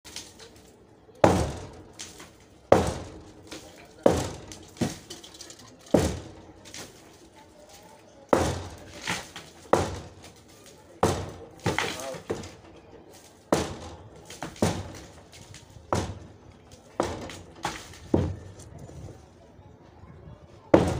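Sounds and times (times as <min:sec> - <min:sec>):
hammer striking concrete: 0:01.2 - 0:07.0, 0:08.3 - 0:12.6, 0:13.5 - 0:18.6.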